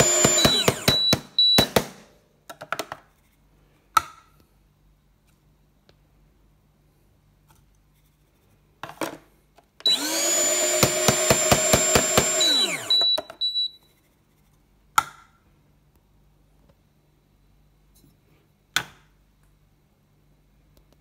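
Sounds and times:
coffee grinder motor with knocks: 0.0s - 1.2s, 9.8s - 13.2s.

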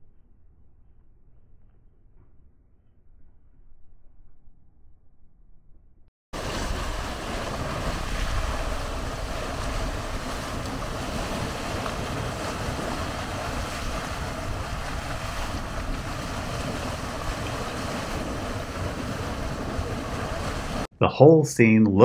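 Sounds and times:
wind buffeting microphone: 6.4s - 20.9s.

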